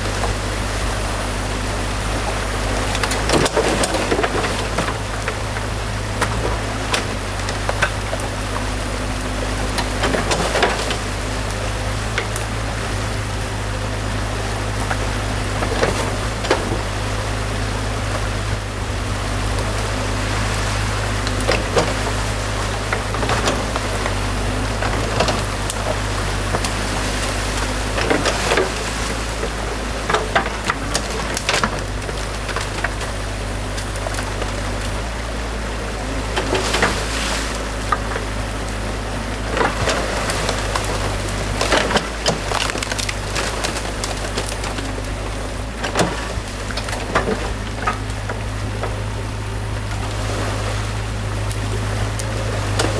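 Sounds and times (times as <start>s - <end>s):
diesel engine running: 0.0s - 52.9s
water rushing: 0.0s - 52.9s
wood cracking and knocking: 2.8s - 8.9s, 9.6s - 12.6s, 21.2s - 35.0s, 36.3s - 50.2s.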